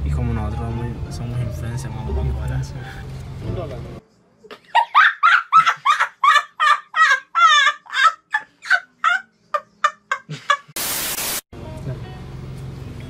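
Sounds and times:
boy laughing: 4.6s - 10.8s.

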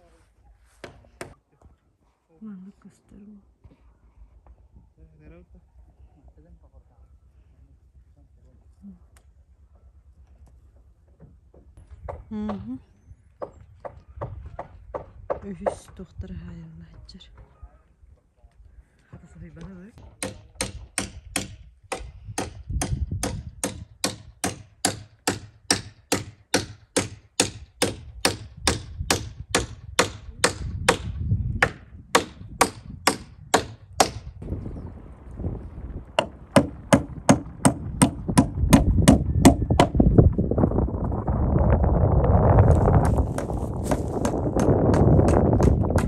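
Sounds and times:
hammer striking: 20.2s - 34.2s.

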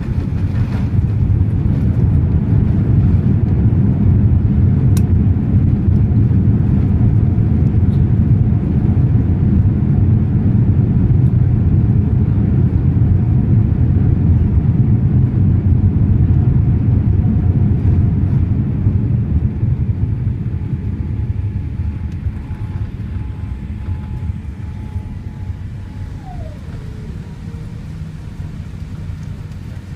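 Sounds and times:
jet engine rumble: 0.0s - 29.9s
faint whine dropping in pitch: 19.6s - 29.9s.

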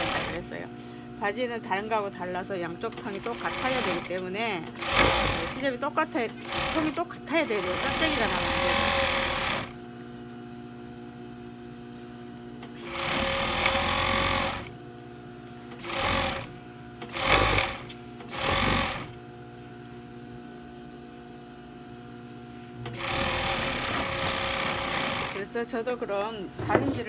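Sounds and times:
sewing machine stitching: 0.0s - 0.5s, 2.9s - 5.7s, 6.4s - 9.8s, 12.8s - 14.7s, 15.7s - 19.2s, 22.8s - 25.4s
steady machine hum: 0.0s - 27.0s.

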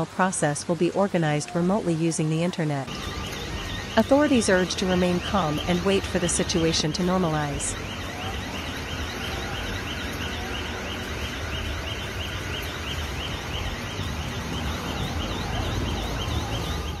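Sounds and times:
street noise: 0.0s - 17.0s
car alarm warbling chirp: 2.9s - 17.0s.

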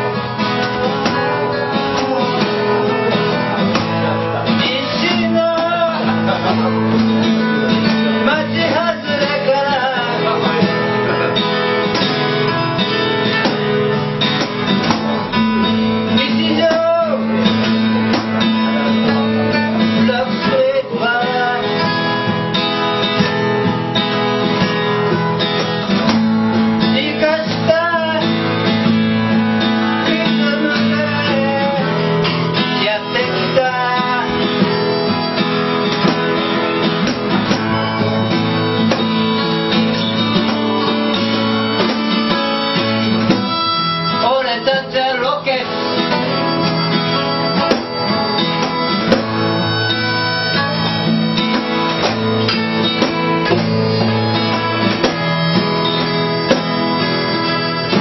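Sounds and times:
acoustic guitar low notes: 0.0s - 58.0s
sliding wavering lead melody: 27.9s - 58.0s.

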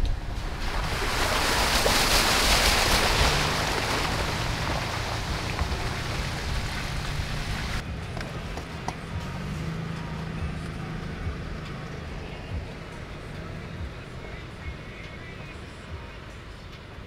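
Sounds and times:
low engine drone: 0.0s - 17.0s
tyres hissing through wet mud: 0.2s - 7.8s.

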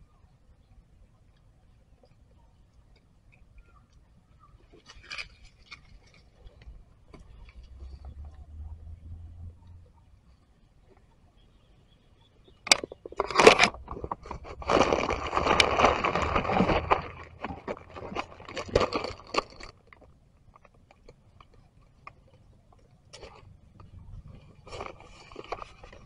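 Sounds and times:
dry leaves and twigs crunching: 12.7s - 20.8s, 23.1s - 26.0s.

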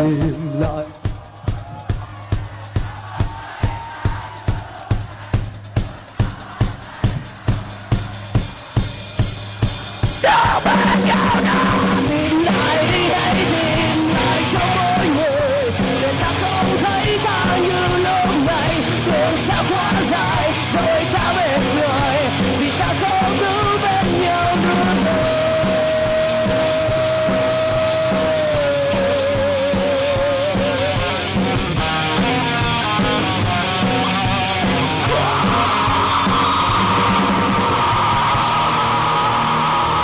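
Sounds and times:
man singing: 0.0s - 1.1s, 10.2s - 31.2s, 31.9s - 36.1s
rock band playing: 0.0s - 40.0s
drum hits: 0.6s - 15.0s
person yelling: 10.2s - 12.0s.

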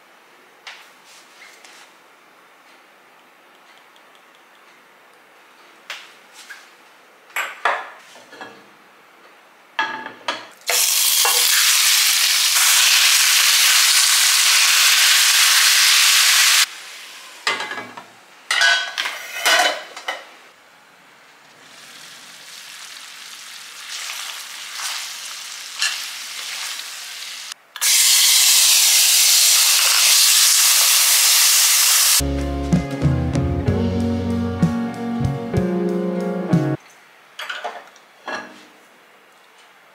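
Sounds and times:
food sizzling in hot oil: 10.7s - 17.5s, 21.6s - 32.2s.

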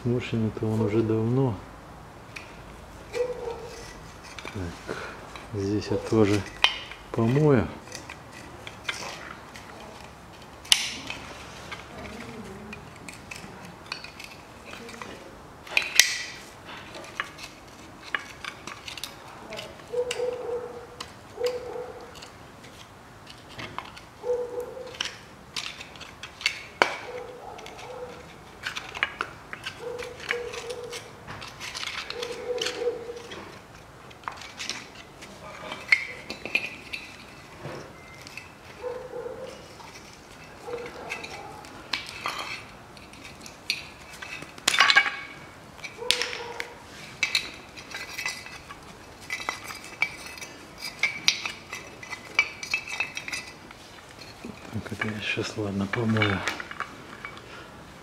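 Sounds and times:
metal parts clinking: 2.3s - 57.5s
short metal squeaks: 37.8s - 39.9s.

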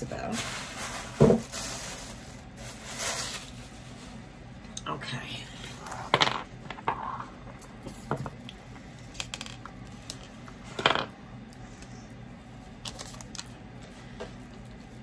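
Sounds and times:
objects rustling and knocking on desk: 0.8s - 1.8s, 6.0s - 8.4s.

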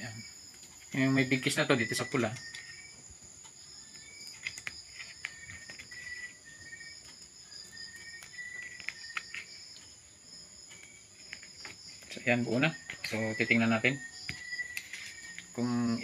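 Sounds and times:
wires clicking and rustling: 0.0s - 10.0s
insects chirping: 0.0s - 16.0s.

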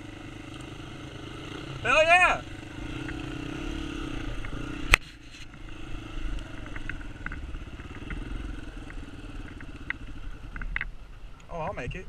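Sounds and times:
dirt bike engine running: 0.0s - 11.2s.

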